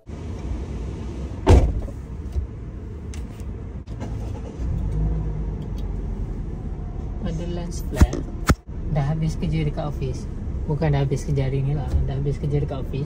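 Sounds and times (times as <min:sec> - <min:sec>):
car engine rumble: 0:00.0 - 0:13.0
sharp thump: 0:01.4 - 0:02.0.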